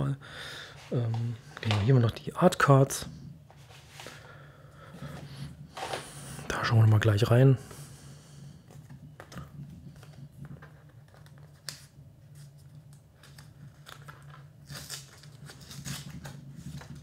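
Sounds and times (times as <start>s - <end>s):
cards rustling and sliding: 5.2s - 6.3s.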